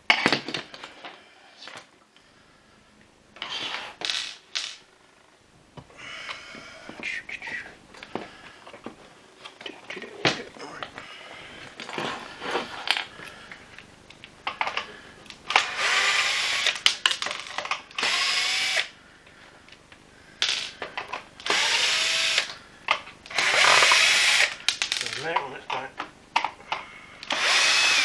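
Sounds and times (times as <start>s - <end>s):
plastic parts clicking and knocking: 13.8s - 15.8s, 16.6s - 18.1s, 19.6s - 21.6s, 22.4s - 27.4s
cordless drill whirring: 15.6s - 16.8s, 18.0s - 18.9s, 21.4s - 22.6s, 23.3s - 24.5s, 27.2s - 28.0s.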